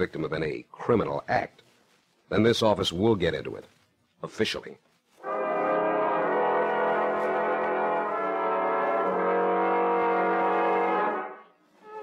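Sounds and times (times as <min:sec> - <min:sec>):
sustained brass chord: 0:05.2 - 0:12.0.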